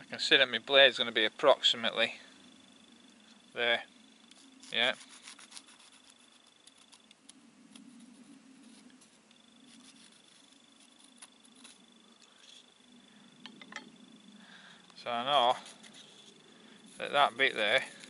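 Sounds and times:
pencil scratching on wood: 4.6s - 6.9s, 7.8s - 11.8s.

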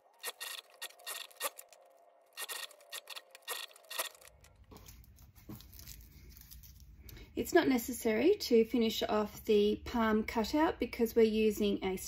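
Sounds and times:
sewing machine clicking: 0.2s - 1.8s, 2.4s - 4.5s.

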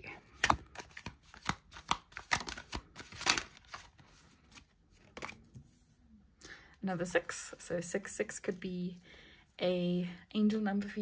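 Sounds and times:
cards tapping and snapping: 0.3s - 4.0s.

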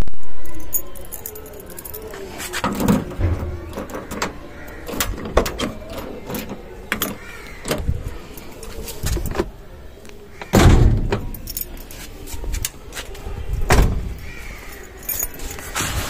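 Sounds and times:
keys jangling: 0.4s - 7.2s, 11.1s - 12.8s, 14.2s - 16.0s
heavy car door thuds: 10.5s - 11.3s.

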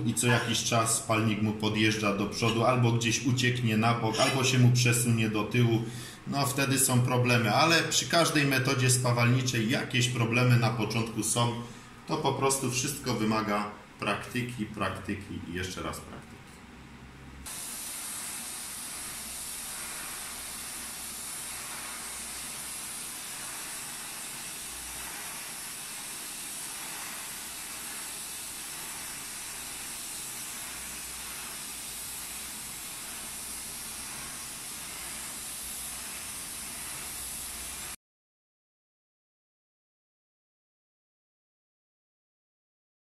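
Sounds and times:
welding arc hissing: 0.0s - 13.6s, 17.4s - 38.0s.

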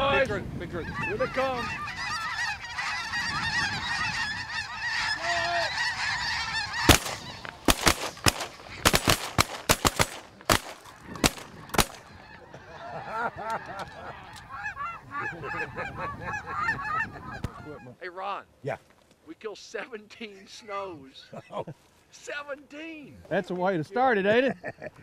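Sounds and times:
geese honking: 0.7s - 18.1s
shotgun fire: 6.9s - 12.0s.

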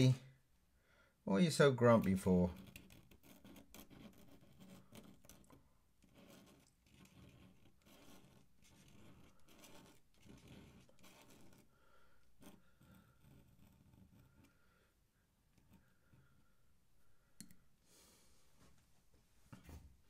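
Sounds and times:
pen scratching on paper: 2.5s - 14.8s, 15.5s - 16.6s.

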